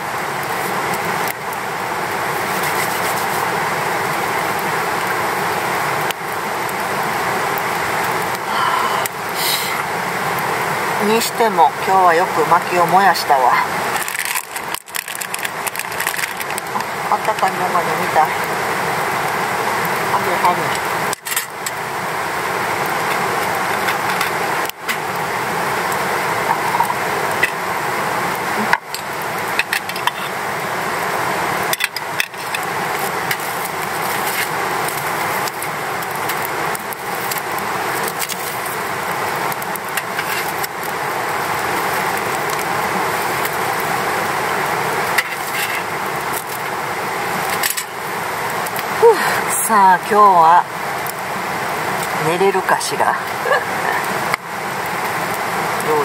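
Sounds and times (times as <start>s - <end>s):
wood fire crackling: 0.0s - 56.0s.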